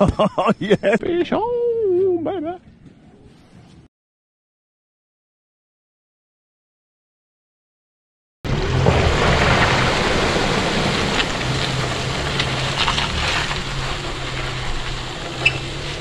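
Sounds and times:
wind: 0:00.0 - 0:03.9, 0:08.4 - 0:16.0
water noise: 0:08.5 - 0:16.0.

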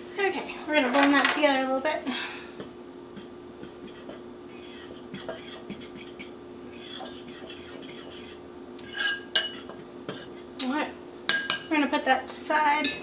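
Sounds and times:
fork scraping mixing bowl: 0:02.6 - 0:10.6.

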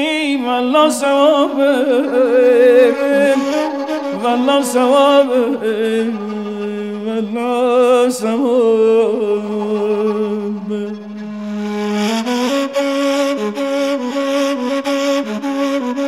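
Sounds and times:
man singing with warbling ornaments: 0:00.0 - 0:11.3
breathy flute: 0:01.1 - 0:08.0, 0:09.3 - 0:16.0.

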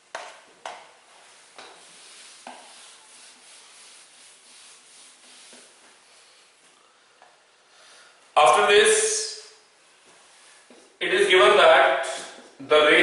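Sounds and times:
duster wiping whiteboard: 0:00.2 - 0:06.7.

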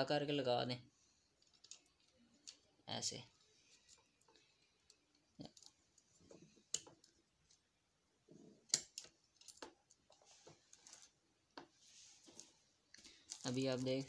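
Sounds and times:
soft handling rustles: 0:09.3 - 0:14.0.

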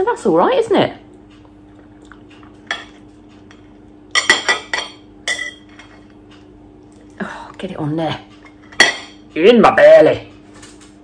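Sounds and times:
faint steady hum: 0:00.0 - 0:11.0
cutlery clinking against plate: 0:02.6 - 0:06.2, 0:08.4 - 0:09.3.

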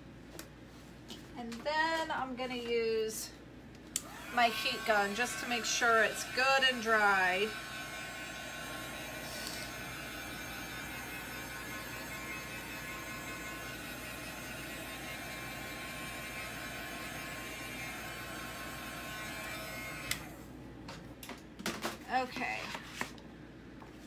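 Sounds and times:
heat gun blowing air: 0:04.0 - 0:20.4.

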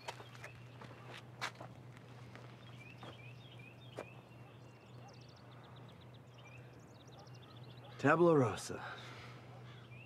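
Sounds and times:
small birds chirping: 0:00.0 - 0:01.4, 0:02.0 - 0:10.0
soft footsteps on ground: 0:00.0 - 0:04.3.

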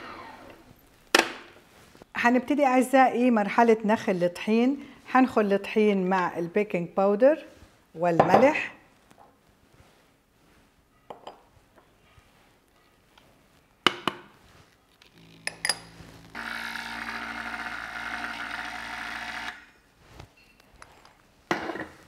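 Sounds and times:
small electric motor running: 0:16.3 - 0:19.6.

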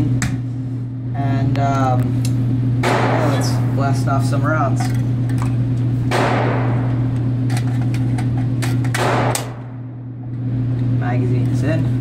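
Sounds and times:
steady low hum: 0:00.0 - 0:12.0
loud echoing bangs: 0:02.8 - 0:03.8, 0:06.1 - 0:07.2, 0:08.9 - 0:10.1.

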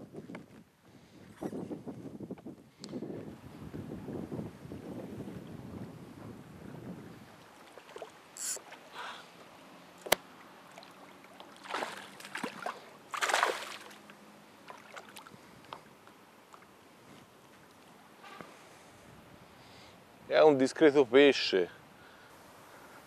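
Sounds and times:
fish splashing at surface: 0:10.7 - 0:14.0.

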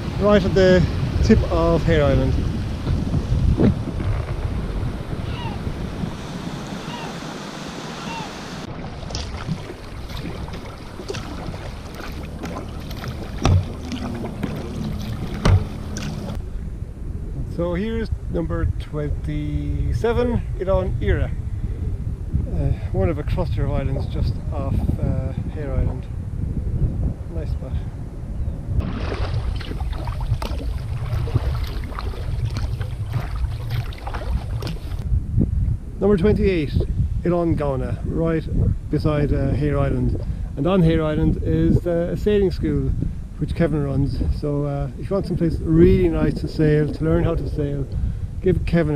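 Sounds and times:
paddle blades splashing: 0:00.0 - 0:16.4, 0:28.8 - 0:35.0
steady low rumble: 0:08.6 - 0:48.9
water dripping: 0:09.0 - 0:16.4
low thump: 0:09.1 - 0:16.4.

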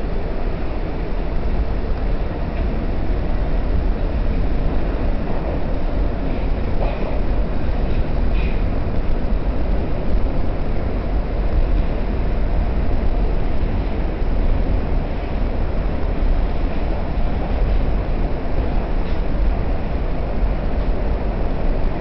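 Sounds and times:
subway car running through tunnel: 0:00.0 - 0:22.0.

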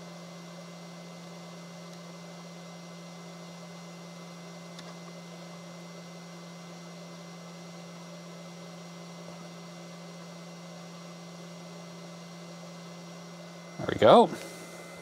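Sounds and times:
electrical hum: 0:00.0 - 0:15.0
fan-like hiss: 0:13.0 - 0:15.0.

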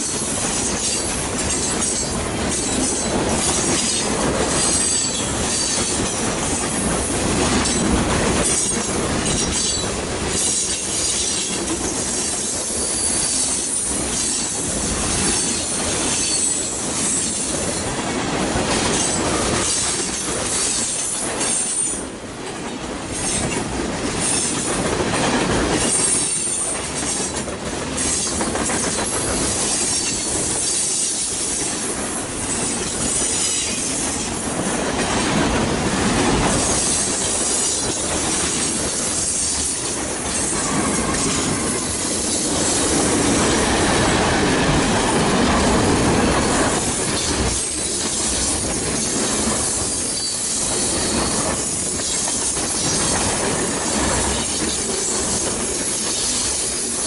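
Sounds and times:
train wheels clattering on rails: 0:00.0 - 0:57.0.

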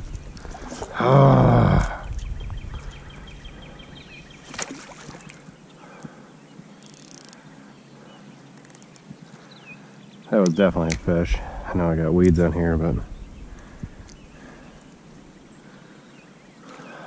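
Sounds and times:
water stirred by wading: 0:00.0 - 0:05.6.

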